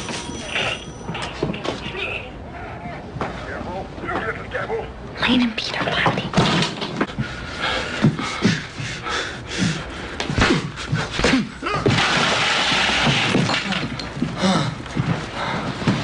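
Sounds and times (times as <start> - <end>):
person crashing to floor: 11.2 - 14.1.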